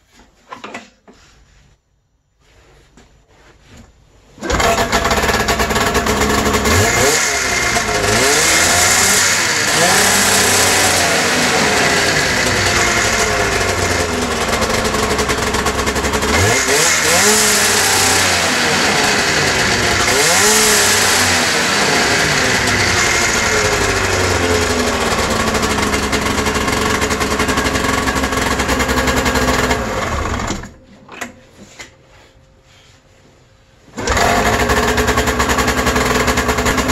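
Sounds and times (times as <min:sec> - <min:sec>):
snowmobile engine revving: 0:04.4 - 0:30.6, 0:34.0 - 0:36.9.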